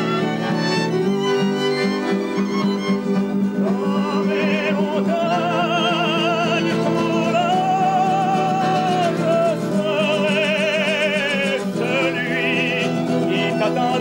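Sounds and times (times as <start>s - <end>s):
violin playing a tune: 0.0s - 14.0s.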